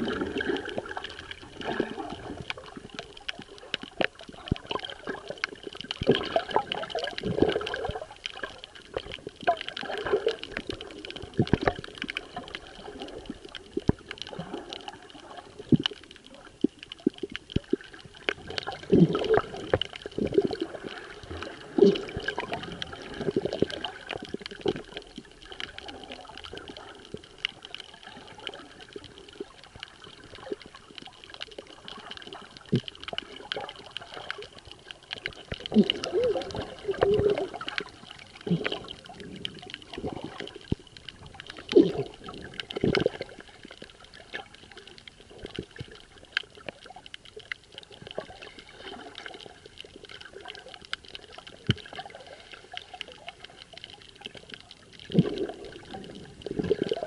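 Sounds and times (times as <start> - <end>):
underwater gurgling and bubbling: 0.0 - 57.0.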